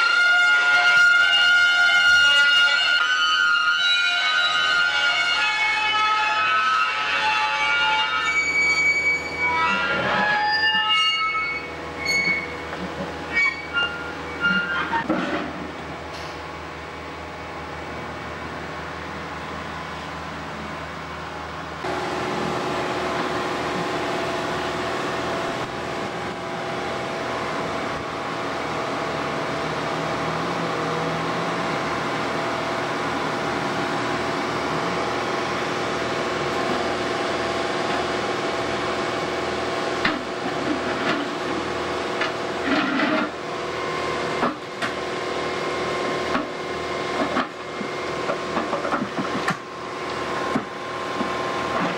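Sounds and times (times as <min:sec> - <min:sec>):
excavator running under load: 0:00.0 - 0:51.9
rails scraping and grinding: 0:08.2 - 0:15.8, 0:40.0 - 0:43.4.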